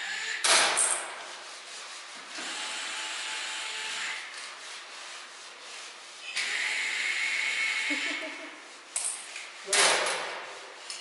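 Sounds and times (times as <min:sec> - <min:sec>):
rubbing and scraping: 0:00.6 - 0:02.4, 0:04.2 - 0:06.4.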